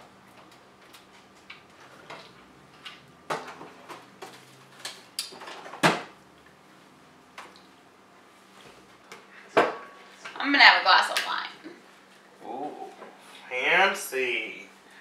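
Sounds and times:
kitchen knocks and clinks: 9.5s - 10.0s.

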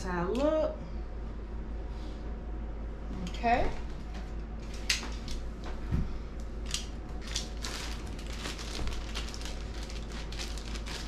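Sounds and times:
packaging rustling and crackling: 6.6s - 11.0s.

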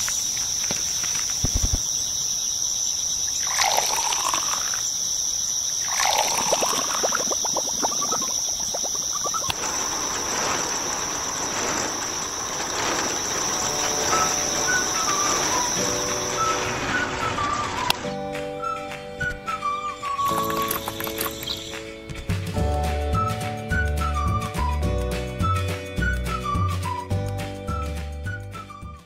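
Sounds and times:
high insect chirring: 0.0s - 17.8s, 20.2s - 22.0s
sand mix pouring into drum: 3.4s - 4.8s, 5.8s - 17.9s
music: 13.6s - 29.0s.

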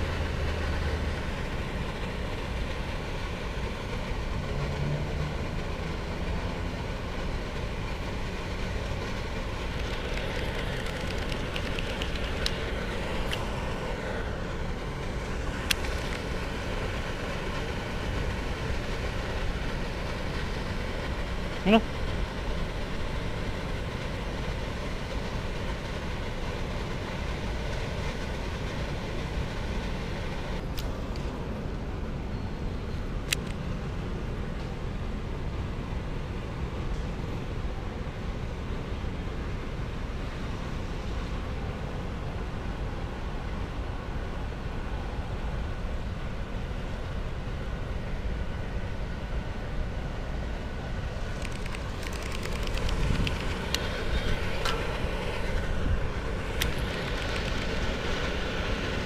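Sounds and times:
low outdoor rumble: 0.0s - 59.0s
clicks: 51.4s - 54.8s.

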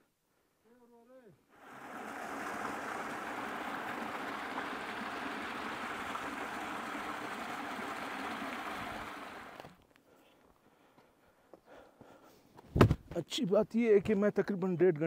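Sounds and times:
stream splashing over boulders: 1.6s - 9.8s.

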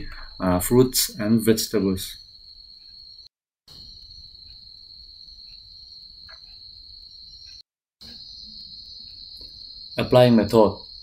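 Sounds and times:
faint ticks: 3.7s - 8.3s, 9.0s - 9.6s.

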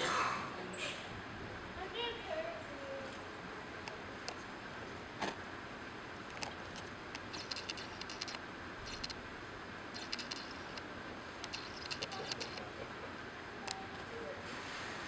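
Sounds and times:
faint high clicking and rustling: 6.3s - 9.2s, 10.0s - 12.7s.

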